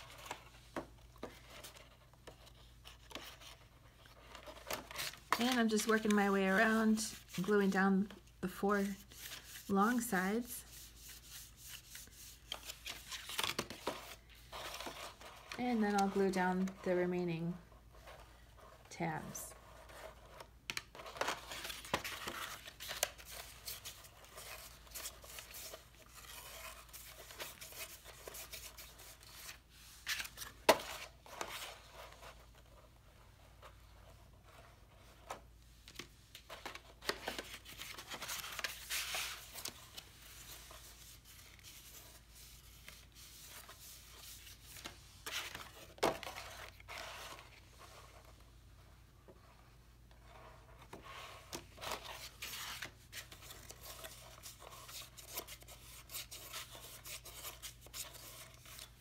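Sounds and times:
stiff paper rustling and scraping: 0:17.8 - 0:32.8, 0:33.5 - 0:48.5.

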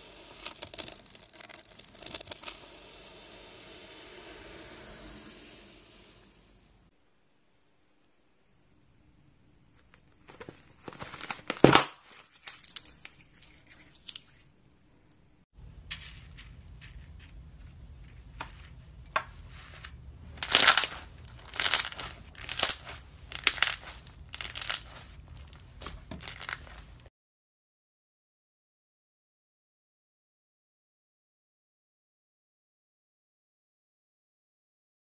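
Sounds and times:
hands squeezing crackling slime: 0:00.3 - 0:02.6, 0:20.4 - 0:27.0.

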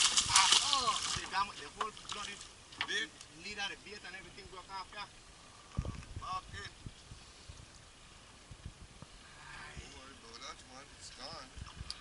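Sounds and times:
wind on open water: 0:00.0 - 0:02.8, 0:05.3 - 0:10.3, 0:10.9 - 0:12.0.

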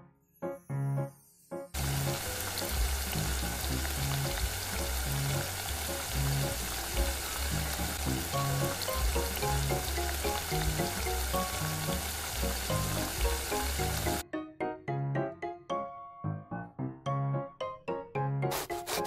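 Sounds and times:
soft background music: 0:00.0 - 0:19.0
patties sizzling in hot oil: 0:01.8 - 0:14.2, 0:18.5 - 0:19.0.

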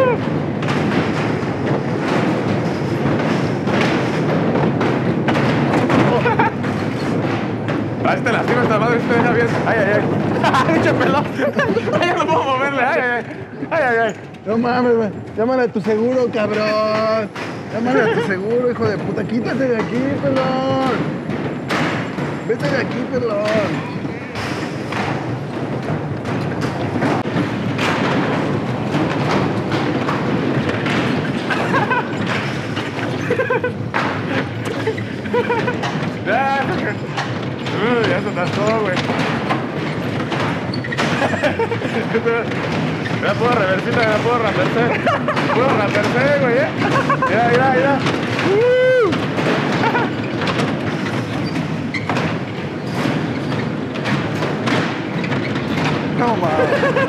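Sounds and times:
bumper cars colliding: 0:00.0 - 0:57.0
ride machinery din: 0:00.0 - 0:57.0.

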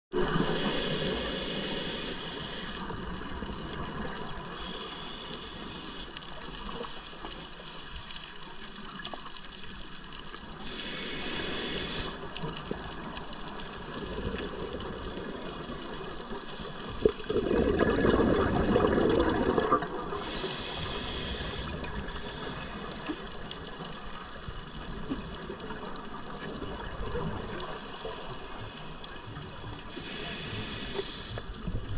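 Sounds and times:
regulator hissing inhalations: 0:00.2 - 0:03.1, 0:04.6 - 0:06.2, 0:10.6 - 0:12.3, 0:20.2 - 0:23.3, 0:27.8 - 0:31.6
exhaled bubbles rushing: 0:16.8 - 0:20.2.

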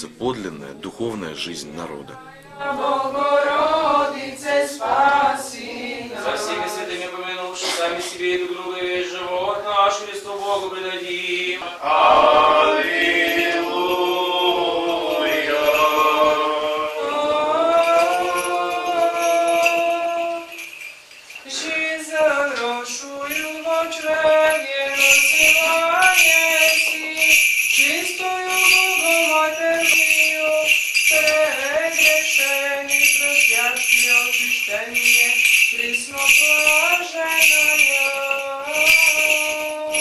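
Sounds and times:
unaccompanied voices chanting: 0:02.0 - 0:20.7
censer bells jingling: 0:12.8 - 0:40.0.

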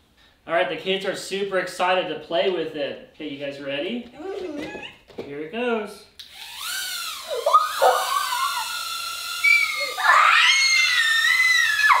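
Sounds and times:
toy drone whining: 0:06.3 - 0:12.0
children screaming and squealing: 0:07.2 - 0:12.0.

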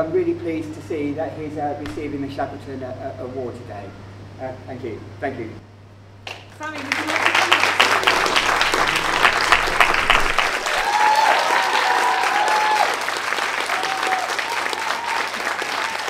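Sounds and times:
audience applauding: 0:06.3 - 0:16.0
person whooping: 0:10.6 - 0:16.0.

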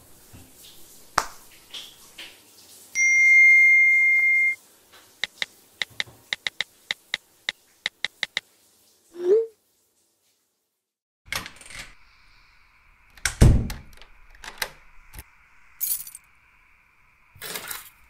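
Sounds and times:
high electronic beep: 0:03.0 - 0:04.6.

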